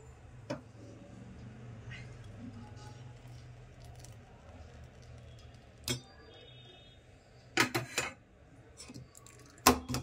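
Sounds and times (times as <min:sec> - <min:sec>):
cups and utensils clinking: 0:05.1 - 0:06.3, 0:07.6 - 0:08.2, 0:08.8 - 0:10.0.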